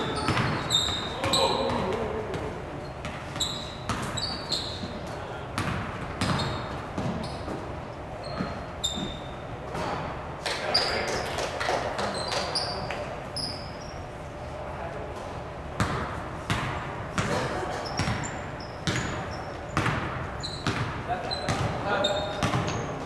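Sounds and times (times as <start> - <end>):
sneaker squeaks: 0.0 - 2.0, 2.8 - 11.4, 12.0 - 14.2, 15.8 - 23.0
basketball bouncing on wooden floor: 0.1 - 5.0, 5.6 - 7.6, 15.8 - 22.8.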